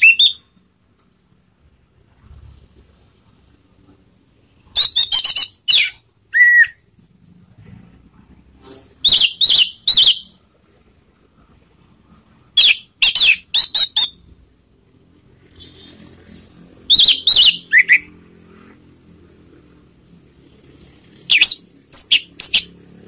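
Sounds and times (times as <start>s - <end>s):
thrush calling high sharp notes: 4.8s - 6.8s.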